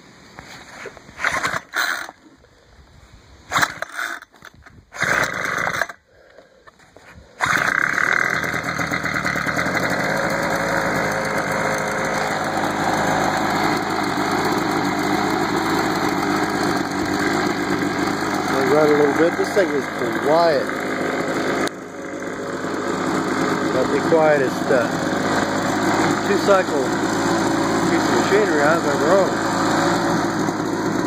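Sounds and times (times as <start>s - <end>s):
leaf blower starter pulls: 0.6s - 2.2s, 3.5s - 6.0s, 6.7s - 31.0s
leaf blower engine running: 5.0s - 6.0s, 7.4s - 31.0s.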